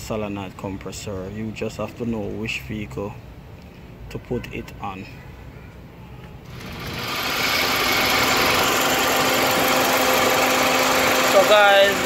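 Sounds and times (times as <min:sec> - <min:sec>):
air conditioning compressor whirring: 0:06.5 - 0:12.0.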